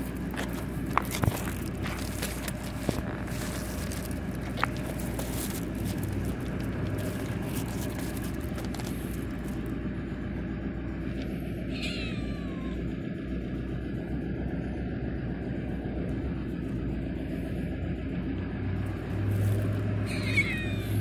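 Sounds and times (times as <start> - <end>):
rustling: 0.0 - 9.7
steady low rumble: 0.0 - 21.0
cat meowing: 11.7 - 12.8, 20.1 - 21.0.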